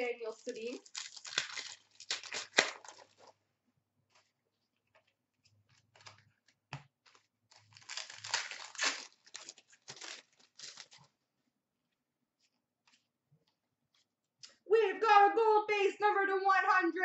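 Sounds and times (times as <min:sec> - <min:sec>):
foil wrapper crinkling and tearing: 0:00.1 - 0:03.4, 0:07.0 - 0:11.2.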